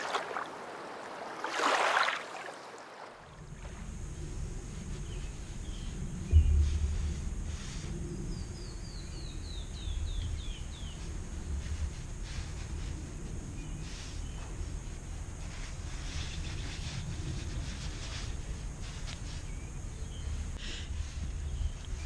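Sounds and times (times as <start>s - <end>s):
steady low rumble: 3.3s - 13.8s
soft brushing sounds: 9.8s - 22.0s.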